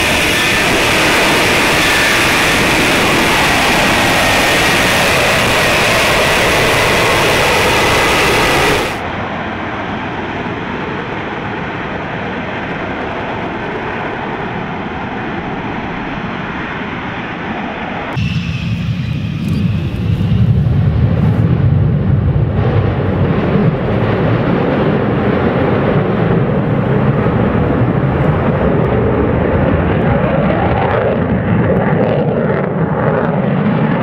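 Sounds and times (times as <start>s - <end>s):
deep heavy jet rumble: 0.0s - 34.0s
jet engine roar: 0.0s - 34.0s
faint high whine: 17.2s - 21.7s.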